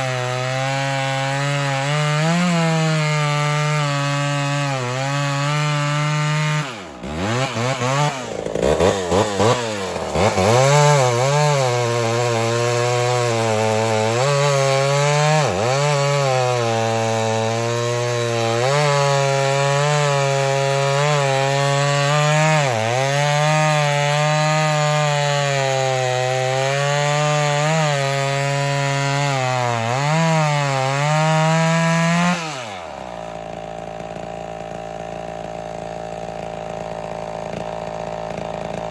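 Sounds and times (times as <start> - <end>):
chainsaw cutting log: 0.0 - 38.9.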